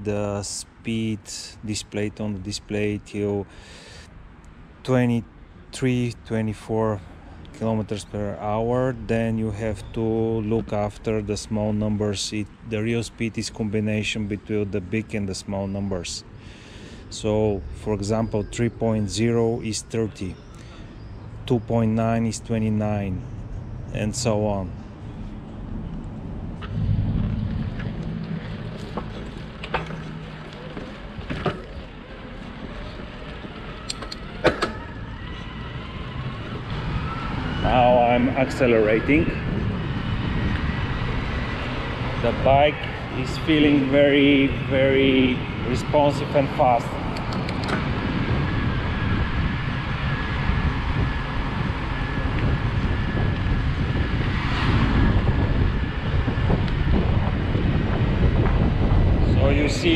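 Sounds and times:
road rumble: 0.0 - 59.9
wind on microphone: 24.8 - 59.9
sharp clicks: 47.1 - 47.8.

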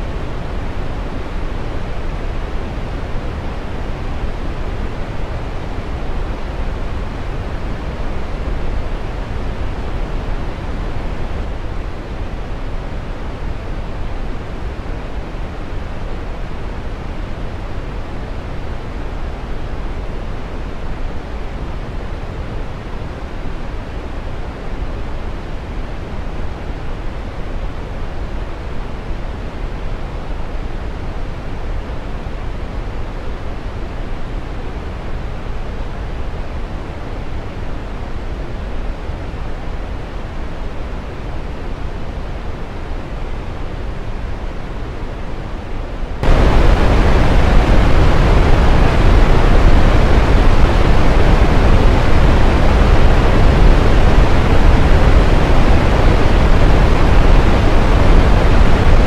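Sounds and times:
steady low rushing noise: 43.8 - 59.0.

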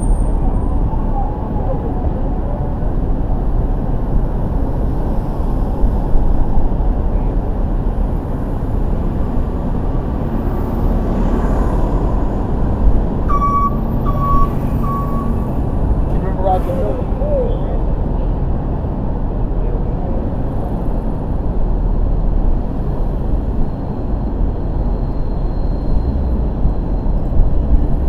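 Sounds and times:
city traffic rumble: 0.0 - 28.0
reversing alarm beeps: 13.3 - 15.5.

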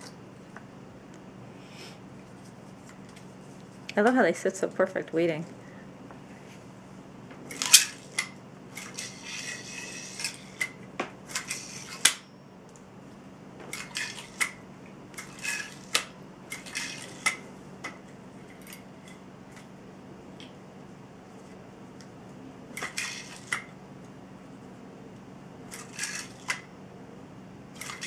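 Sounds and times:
yo-yo whirring on its string: 7.5 - 12.2, 15.2 - 17.4, 22.8 - 23.6.

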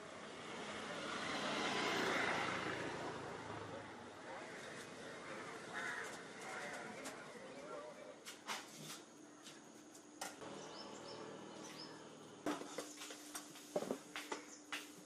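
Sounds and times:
bird chirping: 10.4 - 13.2.

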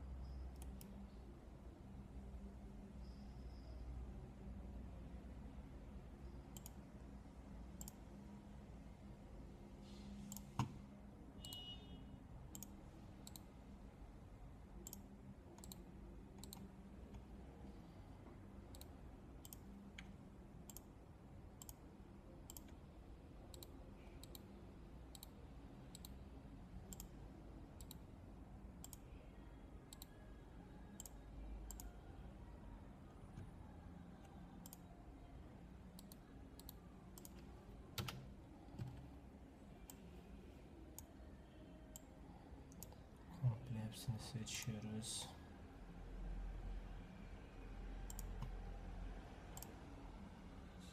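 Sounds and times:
low steady hum: 0.0 - 50.9
computer mouse clicks: 0.5 - 1.0, 6.5 - 6.8, 7.8 - 8.0, 10.3 - 10.8, 12.5 - 13.5, 14.8 - 17.2, 18.7 - 20.9, 21.6 - 21.8, 22.4 - 22.8, 23.5 - 24.5, 25.1 - 26.2, 26.9 - 27.2, 27.8 - 28.1, 28.8 - 29.1, 29.9 - 30.2, 31.0 - 31.9, 34.2 - 34.9, 36.0 - 39.2, 42.7 - 43.0, 48.1 - 48.6, 49.5 - 49.8.

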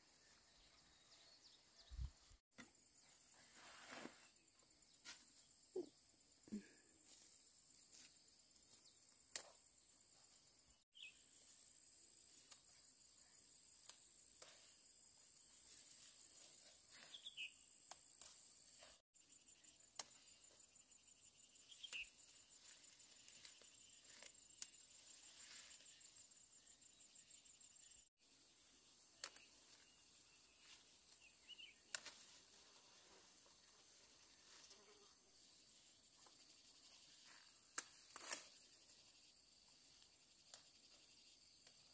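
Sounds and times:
insects trilling: 11.0 - 41.9.

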